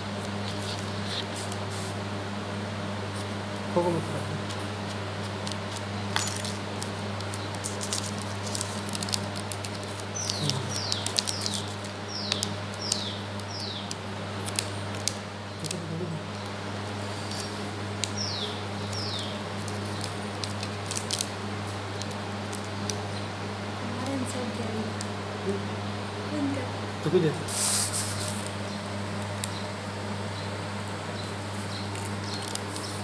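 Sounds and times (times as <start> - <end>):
steady low hum: 0.0 - 33.0.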